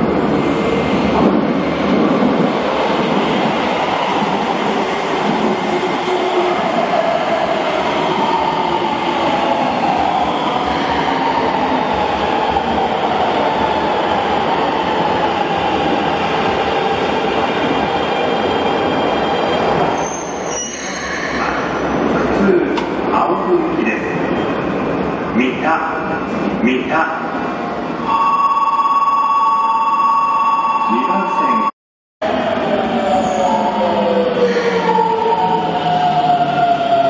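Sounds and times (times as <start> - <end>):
train wheels rumbling on rails: 0.0 - 25.3.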